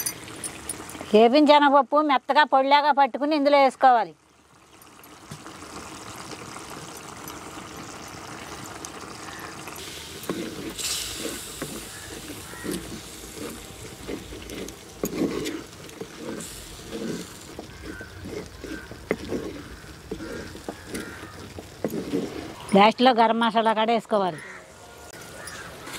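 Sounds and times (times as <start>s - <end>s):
curry simmering in a pot: 3.7s - 22.8s
spatula scraping and knocking pot: 10.2s - 23.3s.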